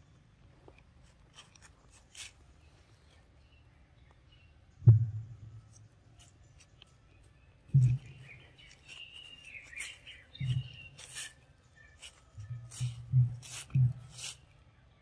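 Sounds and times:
birds chirping: 2.4s - 15.0s
dull low thumps: 4.8s - 5.6s, 7.7s - 8.3s.

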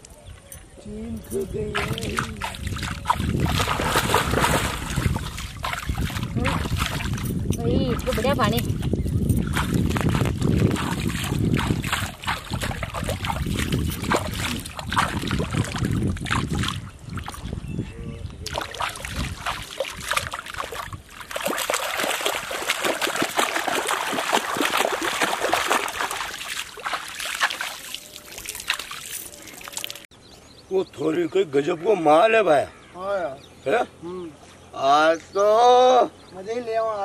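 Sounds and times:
water trickling: 1.1s - 17.7s, 18.4s - 30.1s
feet kicking in water: 1.6s - 17.6s, 18.4s - 30.1s
water splashed by hand: 1.6s - 17.6s, 18.4s - 30.1s.

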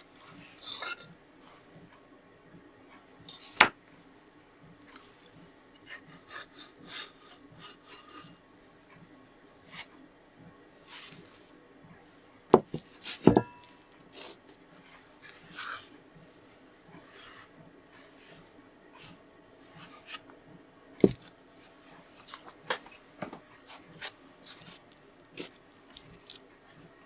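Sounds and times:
sharp knocks of metal on bench: 12.5s - 13.6s.

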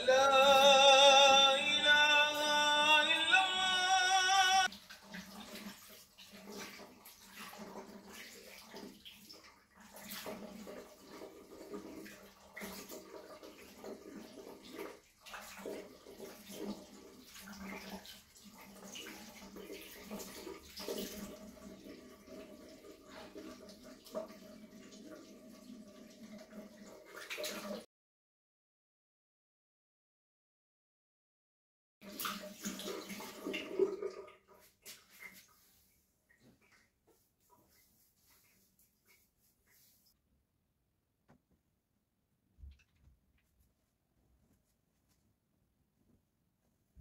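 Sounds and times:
voice singing long wavering notes: 0.0s - 4.7s
water running and splashing: 4.6s - 27.9s, 32.0s - 40.2s.

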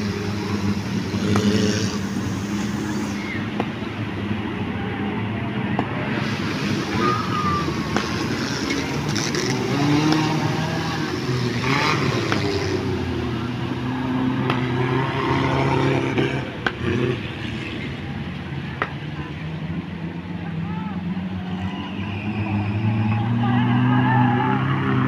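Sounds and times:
jeep engines revving: 0.0s - 25.0s
water splashing: 6.0s - 15.8s.

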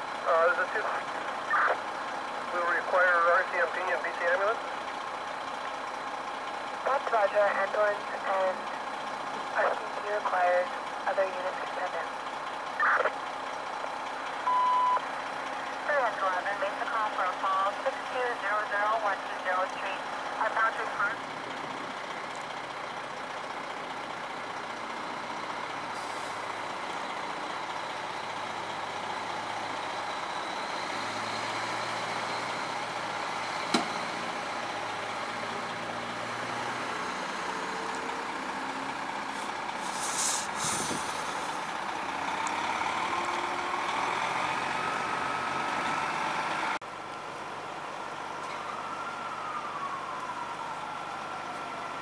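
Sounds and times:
diesel engine idling: 0.0s - 52.0s
air brake hiss: 39.3s - 41.7s.

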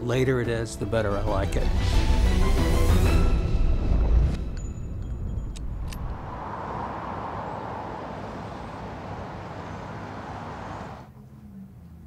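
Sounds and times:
steady rushing noise: 4.0s - 11.0s.

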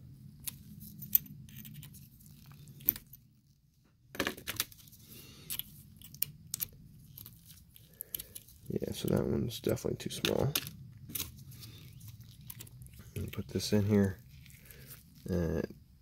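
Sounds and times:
faint low hum: 0.0s - 16.0s
metal tools clicking and scraping: 0.4s - 3.2s.

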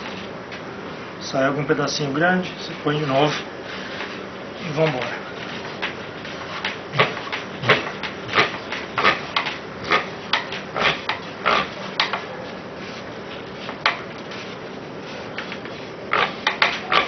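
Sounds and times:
meat grinder clicking scrapes: 6.4s - 12.2s, 15.4s - 17.0s.

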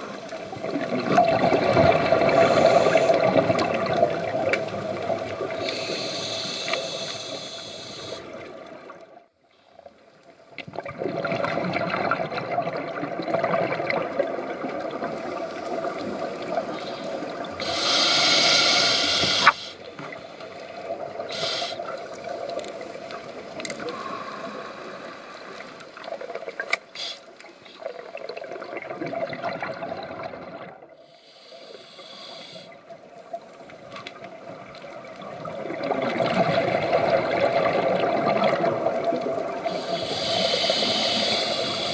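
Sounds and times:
bubbling exhaled air: 0.6s - 8.5s
regulator hissing inhale: 2.3s - 3.3s, 5.6s - 8.3s, 17.6s - 21.9s, 23.9s - 25.5s, 27.0s - 27.8s, 31.0s - 32.8s, 39.6s - 41.9s.

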